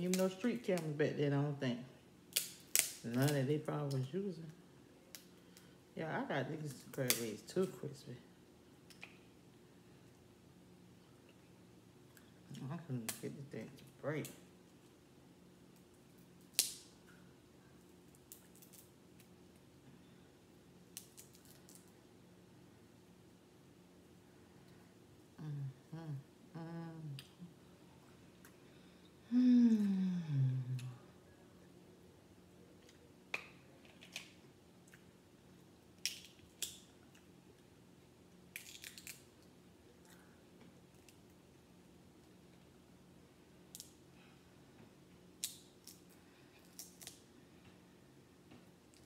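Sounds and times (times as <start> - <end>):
faint room hum: 0.0 - 49.0
crab shell cracking: 2.3 - 3.4, 16.4 - 17.2, 18.1 - 19.4, 20.9 - 21.9, 36.0 - 37.3, 38.5 - 39.5, 45.4 - 47.2.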